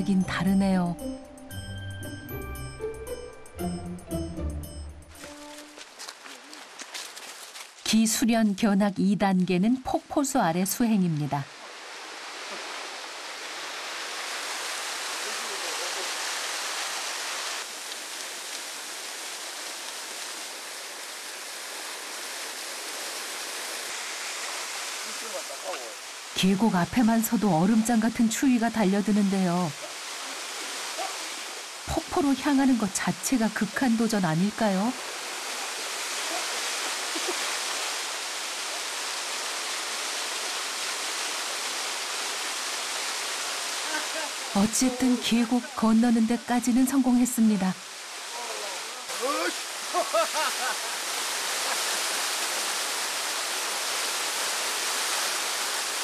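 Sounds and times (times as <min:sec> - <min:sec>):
waterfall splashing into pool: 0:11.5 - 0:26.4, 0:29.6 - 0:31.9, 0:34.8 - 0:45.2, 0:47.8 - 0:56.0.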